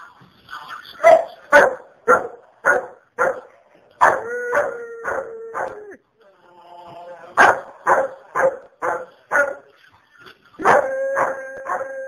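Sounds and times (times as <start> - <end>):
dog barking rapidly: 1.0 - 4.2, 7.4 - 9.7
dog howling: 4.0 - 7.5, 10.6 - 12.0.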